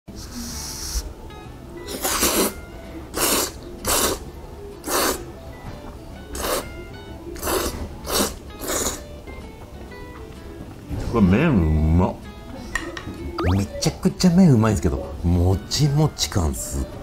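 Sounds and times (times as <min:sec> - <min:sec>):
soft background music: 0:00.1 - 0:17.0
person slurping noodles: 0:01.9 - 0:02.6, 0:03.2 - 0:04.2, 0:04.8 - 0:05.2, 0:06.3 - 0:06.7, 0:07.4 - 0:09.0.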